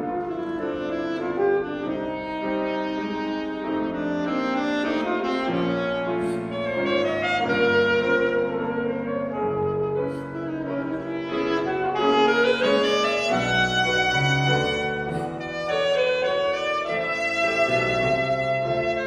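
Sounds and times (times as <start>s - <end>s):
piano accompaniment: 0.0s - 19.0s
saxophone melody: 0.0s - 19.0s.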